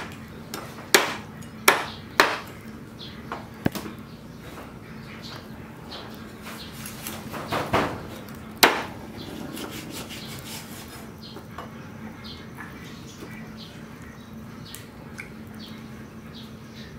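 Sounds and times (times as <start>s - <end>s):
cleaver chopping on wooden block: 0.9s - 2.5s.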